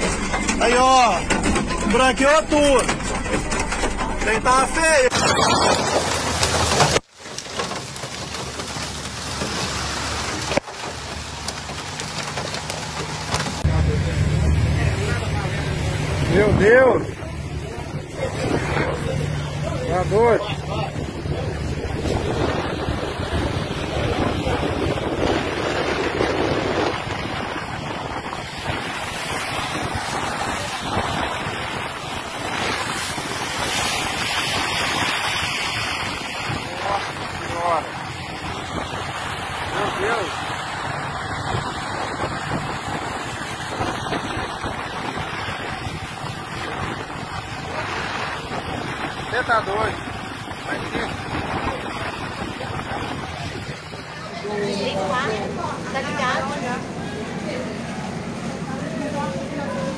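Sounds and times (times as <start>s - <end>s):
tyre and road noise: 0.0s - 59.9s
rain and hail falling: 5.0s - 13.7s
wind rushing over microphone: 8.0s - 59.9s.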